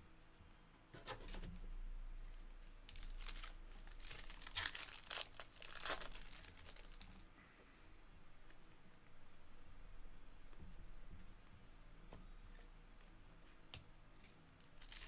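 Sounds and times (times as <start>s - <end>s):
foil wrapper tearing and crinkling: 2.9s - 7.2s, 14.6s - 15.0s.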